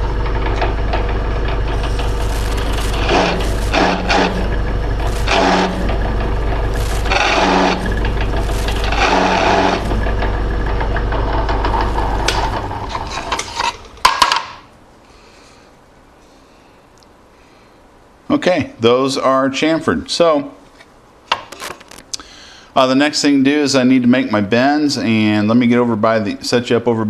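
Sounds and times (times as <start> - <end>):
drill press running: 0.0 - 14.3
countersink bit chattering in metal: 0.0 - 14.5.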